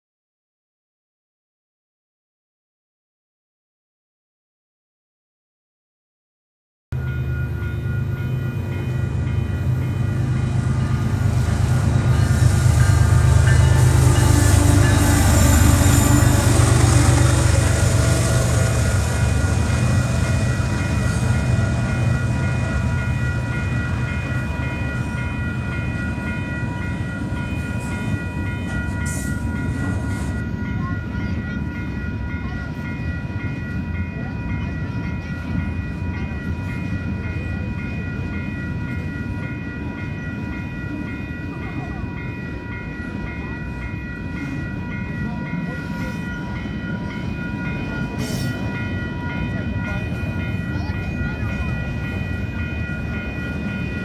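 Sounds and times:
crossing warning bell ringing: 7.0s - 54.0s
diesel locomotive engine rumble: 7.0s - 54.0s
train wheels rolling: 8.2s - 30.7s.

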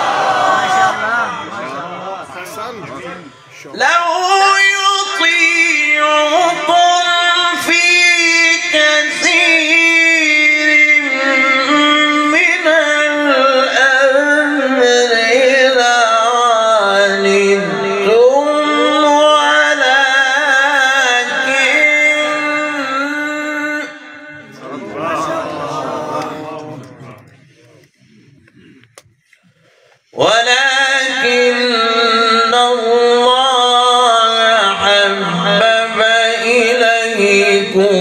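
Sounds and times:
person chanting melodically: 30.2s - 38.0s.

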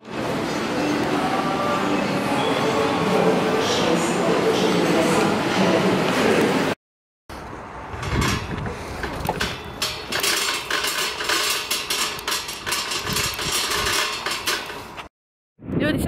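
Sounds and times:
shopping cart rattling on asphalt: 8.0s - 15.1s.

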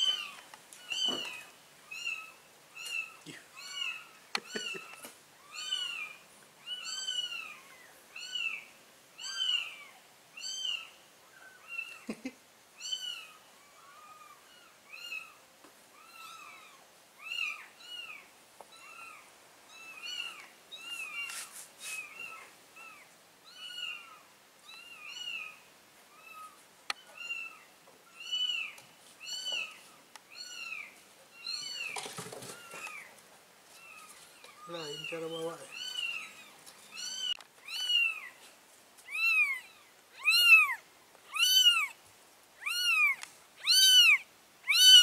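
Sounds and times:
kittens mewing: 0.0s - 8.6s, 33.8s - 38.4s, 39.0s - 42.0s, 42.6s - 45.0s
brief rustle: 20.9s - 22.2s.

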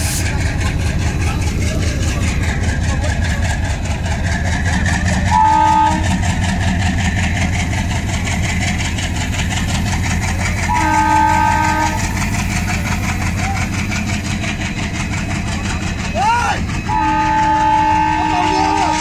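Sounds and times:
locomotive rumble: 0.0s - 19.0s
train horn blasts: 5.3s - 6.2s, 10.7s - 12.4s, 16.9s - 19.0s.

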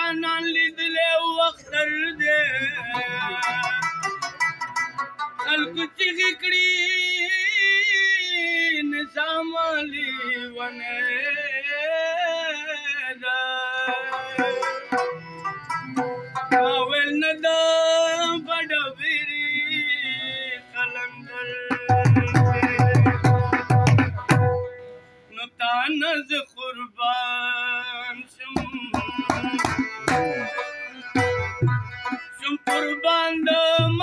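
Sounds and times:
man singing: 0.0s - 4.1s, 5.4s - 15.0s, 16.5s - 24.2s, 25.3s - 31.4s, 32.0s - 34.0s
harmonium notes: 0.0s - 11.7s, 12.6s - 34.0s
tabla strokes: 13.9s - 16.9s, 21.7s - 25.1s, 28.6s - 33.0s.

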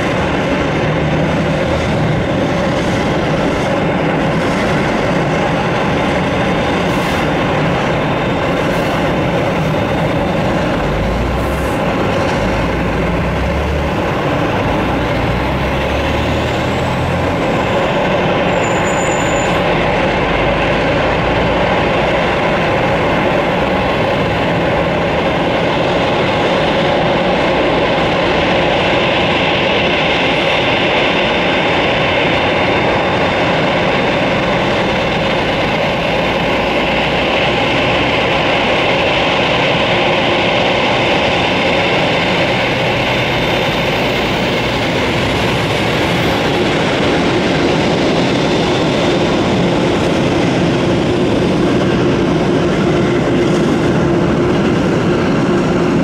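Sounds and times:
low rumbling: 0.0s - 29.6s
jet engine whine: 0.0s - 56.0s.

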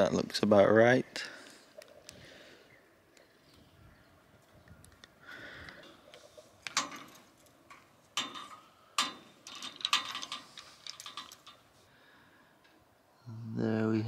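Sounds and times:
metal clicks: 4.7s - 11.7s
metal scraping and ticks: 4.8s - 11.9s.

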